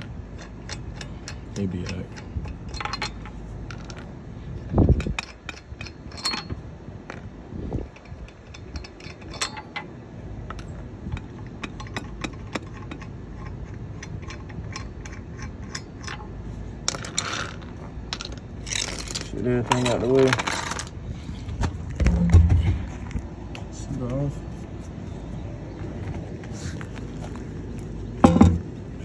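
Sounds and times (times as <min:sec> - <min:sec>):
thump: 0:22.0 - 0:22.9.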